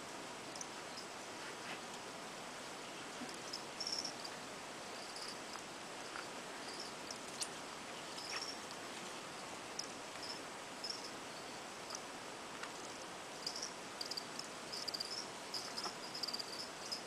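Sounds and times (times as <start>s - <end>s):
steady hiss: 0.0s - 17.0s
cricket chirping: 3.2s - 8.8s, 9.7s - 17.0s.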